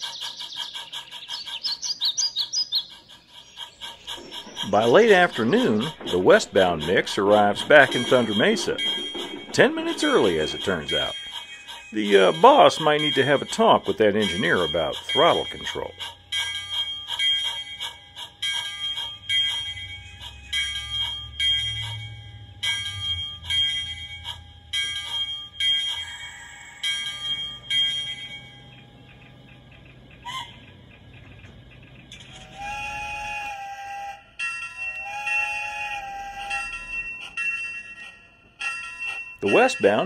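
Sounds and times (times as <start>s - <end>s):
locomotive bell ringing: 4.0s - 30.8s, 32.1s - 40.0s
steam whistle blasts: 32.3s - 34.4s, 35.0s - 37.0s.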